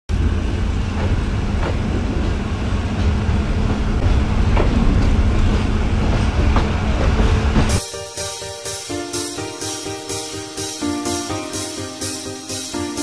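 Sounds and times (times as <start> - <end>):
train rumbling on track: 0.1 - 7.9.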